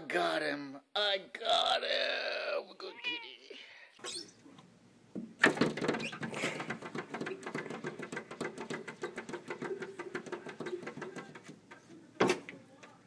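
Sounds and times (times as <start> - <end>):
cat claws tapping on glass: 5.5 - 11.8.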